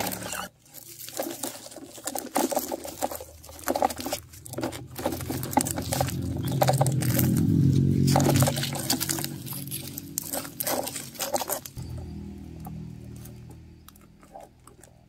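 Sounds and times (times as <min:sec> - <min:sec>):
toy trucks clicking and scraping: 0:00.0 - 0:15.0
low droning hum: 0:03.0 - 0:15.0.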